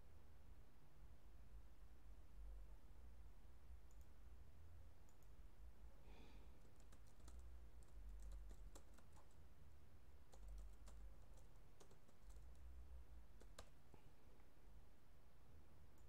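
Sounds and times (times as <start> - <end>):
computer keyboard typing: 6.6 - 9.4, 10.3 - 12.7, 13.3 - 13.8.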